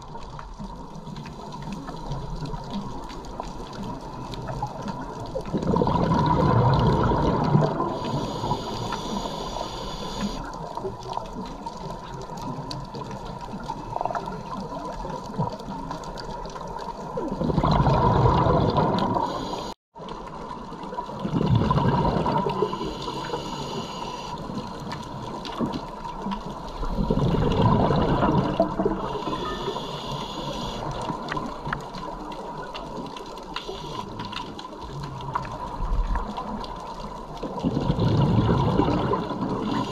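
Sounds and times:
bubbling exhalation underwater: 4.4 - 8.4, 17.2 - 19.4, 21.2 - 23.2, 26.8 - 30.1, 37.4 - 39.9
regulator inhalation hiss: 8.0 - 10.4, 19.2 - 19.8, 22.6 - 24.4, 29.1 - 30.8.

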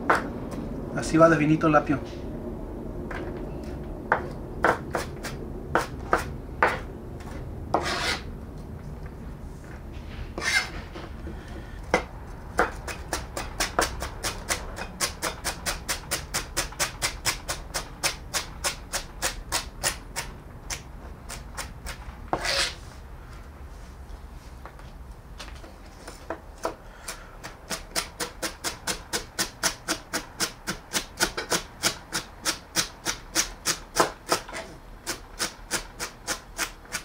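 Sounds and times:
knife rasping strokes: 7.8 - 8.3, 10.4 - 10.8, 21.3 - 22.8.

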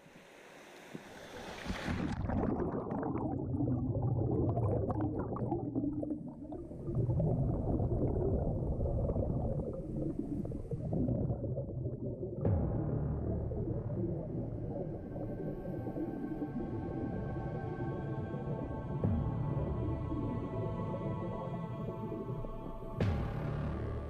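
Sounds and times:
hiss: 0.0 - 2.0
muffled churning water: 0.0 - 24.0.

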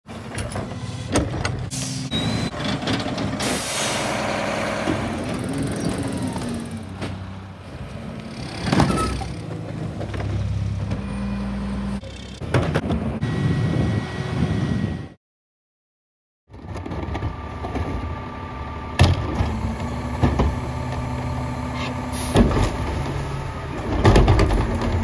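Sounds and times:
carts clattering and banging: 0.1 - 13.1, 22.2 - 25.0
garbage truck diesel engine: 0.1 - 15.2, 16.5 - 25.0
air brake hisses: 3.4 - 4.2.

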